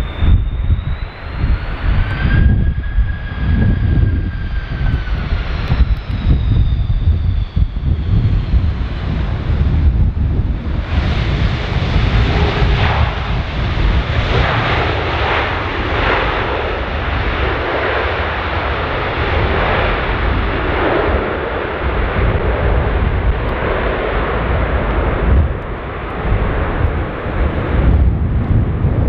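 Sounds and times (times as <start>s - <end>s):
jet engines rushing: 0.0s - 29.0s
wind buffeting on microphone: 0.0s - 29.0s.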